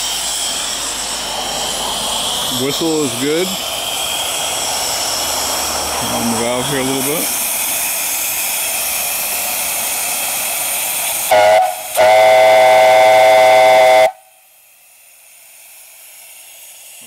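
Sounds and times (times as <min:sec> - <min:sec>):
steam hissing: 0:00.0 - 0:17.0
steam whistle blasts: 0:11.2 - 0:14.4.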